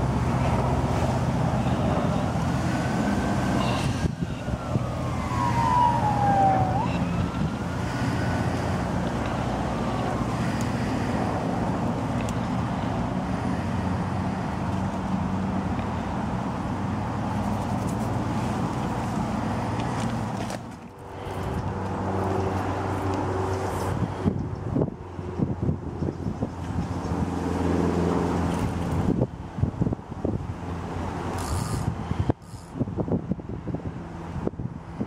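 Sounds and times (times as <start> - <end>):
low rumble of vehicle noise: 0.0 - 35.0
distant siren wailing: 4.0 - 10.3.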